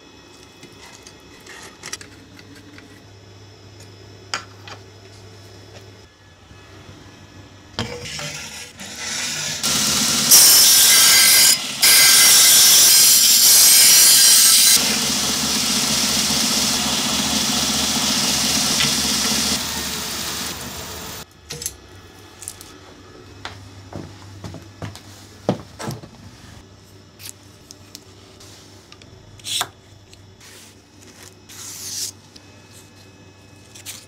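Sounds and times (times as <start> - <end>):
belt grinder grinding steel: 8.4 - 21.2.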